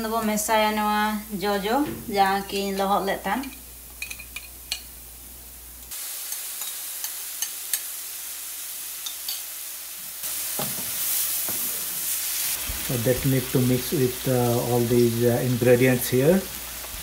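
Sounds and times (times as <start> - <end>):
pulp sizzling in hot oil: 5.9 - 17.0.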